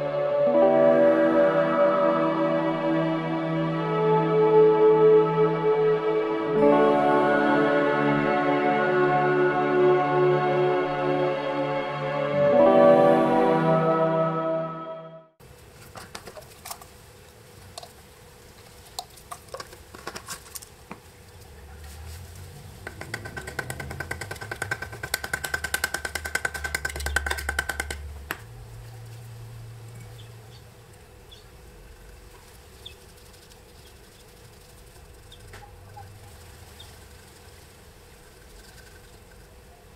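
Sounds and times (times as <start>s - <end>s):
handling clicks and knocks: 22.8s - 28.5s.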